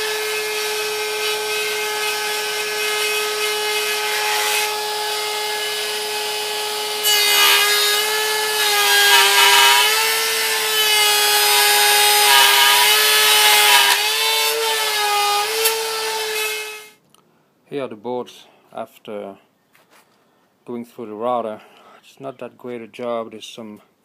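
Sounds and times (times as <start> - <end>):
wood router whining: 0.0 - 17.0.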